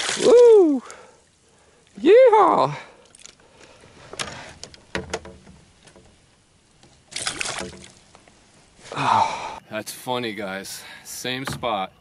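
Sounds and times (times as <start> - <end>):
water splashing: 0.0 - 3.8, 5.6 - 8.2
sharp knocks and clicks: 4.2 - 6.2.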